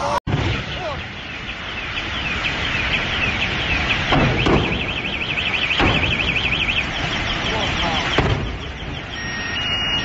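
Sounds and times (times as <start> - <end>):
steady background noise: 0.0 - 10.0
electronic siren wailing and warbling: 2.2 - 10.0.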